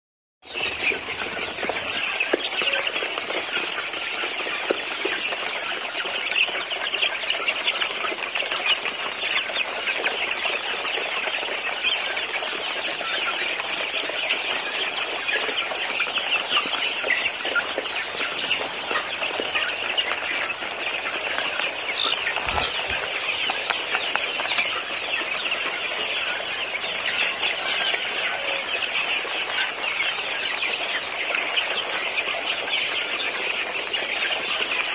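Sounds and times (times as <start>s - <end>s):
chicks peeping: 0.5s - 34.9s.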